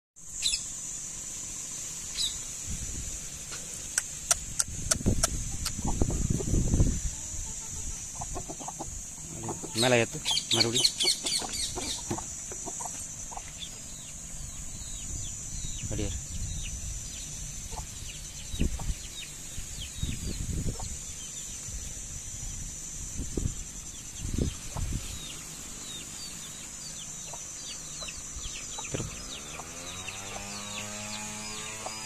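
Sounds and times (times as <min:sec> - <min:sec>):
drawn-out pitched hum: 0:00.2 - 0:32.0
steady high hiss: 0:00.2 - 0:32.0
chickens peeping: 0:03.5 - 0:22.0, 0:23.1 - 0:32.0.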